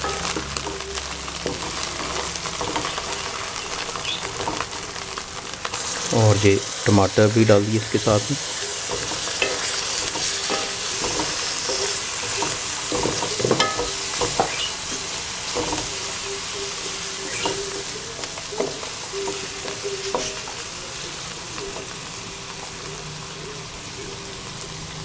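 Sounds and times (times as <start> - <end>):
spatula stirring and scraping: 0.0 - 5.0, 7.9 - 21.1
masala sizzling in hot oil: 0.0 - 25.0
spatula knocking metal: 8.9 - 14.7.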